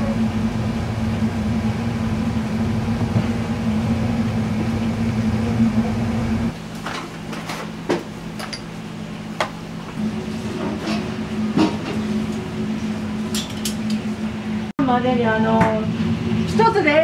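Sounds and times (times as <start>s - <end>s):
kitchen equipment humming: 4.6s - 14.7s.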